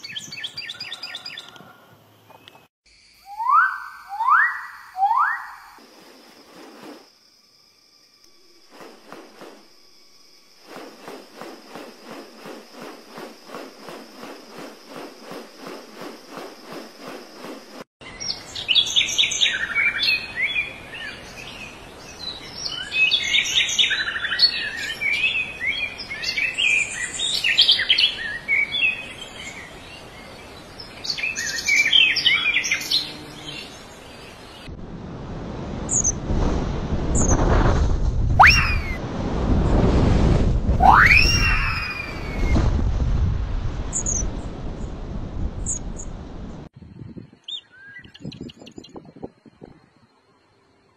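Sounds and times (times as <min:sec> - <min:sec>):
songbirds chirping: 0:00.0 - 0:05.7
steady high whine: 0:07.9 - 0:17.9
rushing wind-like noise: 0:10.6 - 0:17.9, 0:34.0 - 0:47.5.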